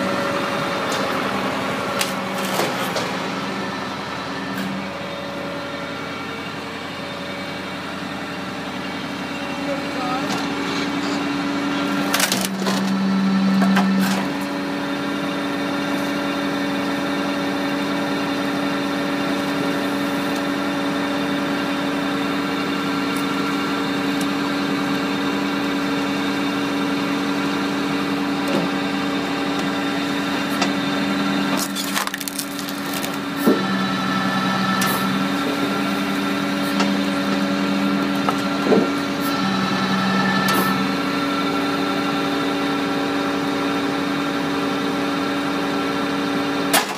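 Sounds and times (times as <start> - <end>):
firewood processor engine droning: 0.0 - 46.9
logs cracking and falling: 31.6 - 33.3.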